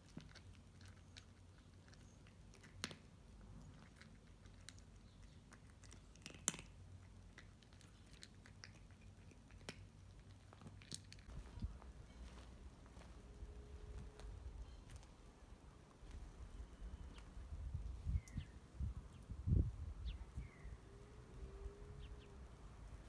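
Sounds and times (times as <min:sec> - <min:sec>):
cat crunching dry kibble: 0:00.0 - 0:11.4.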